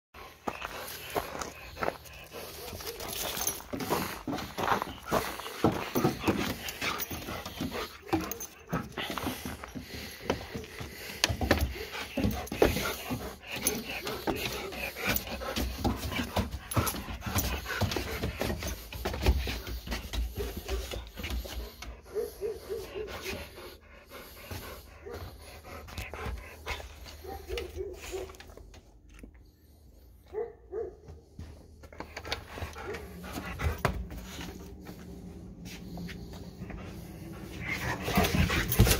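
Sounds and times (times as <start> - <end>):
dog panting: 0.2 - 38.9
dog claws tapping on wooden deck: 2.2 - 21.9.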